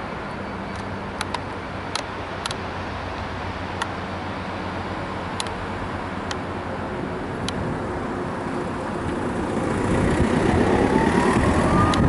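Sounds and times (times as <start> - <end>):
diesel locomotive engine: 0.0 - 12.0
rising whine: 7.2 - 12.0.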